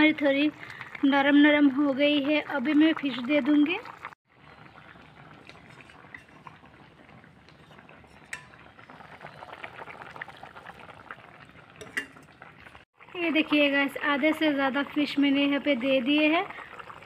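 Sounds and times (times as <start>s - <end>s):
curry bubbling in a pan: 0.0s - 17.0s
spoon clinking against bowl: 11.8s - 12.3s.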